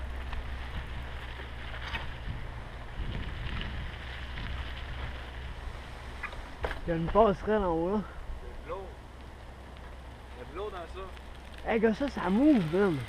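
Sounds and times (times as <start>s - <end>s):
wind buffeting microphone: 0.0s - 6.6s
bicycle tyres on gravel: 0.0s - 8.1s, 8.8s - 13.0s.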